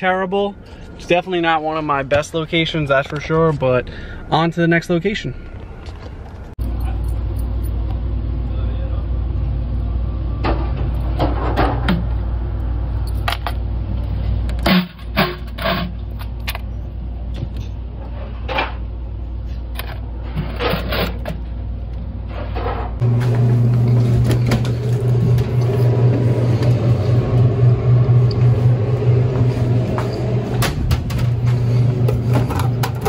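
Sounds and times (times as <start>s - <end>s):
machine hum: 18.9s - 33.0s.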